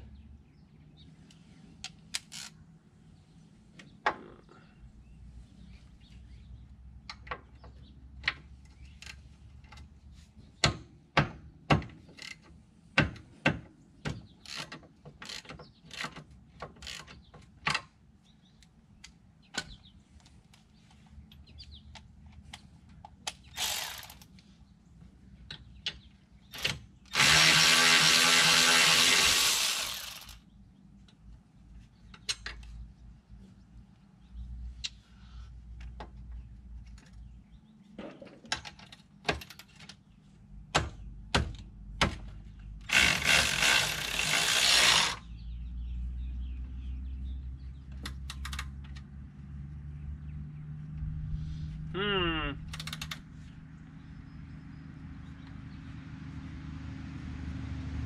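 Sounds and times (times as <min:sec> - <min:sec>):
hand ratchet clicking: 0:23.3 - 0:24.3, 0:26.6 - 0:30.4, 0:52.7 - 0:53.2
power tool running: 0:23.6 - 0:24.2, 0:26.6 - 0:30.4, 0:42.8 - 0:45.3.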